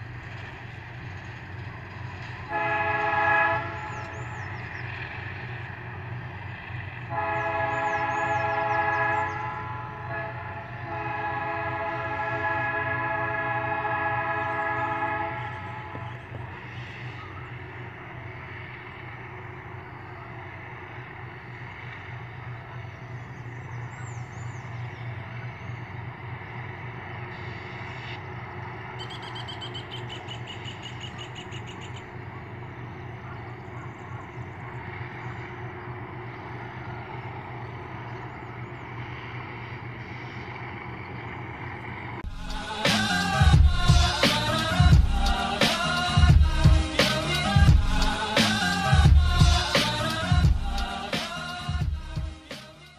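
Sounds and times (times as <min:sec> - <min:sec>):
locomotive engines rumbling: 0:00.0 - 0:52.9
locomotive horn chord: 0:02.0 - 0:04.6, 0:06.8 - 0:17.0, 0:27.2 - 0:33.6, 0:42.2 - 0:52.9.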